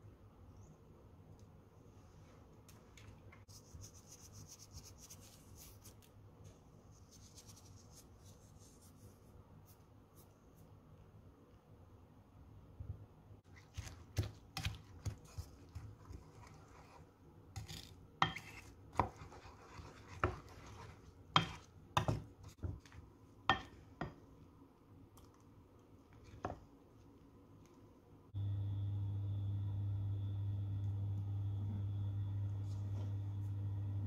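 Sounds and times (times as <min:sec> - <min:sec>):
steady hum: 0:28.2 - 0:34.0.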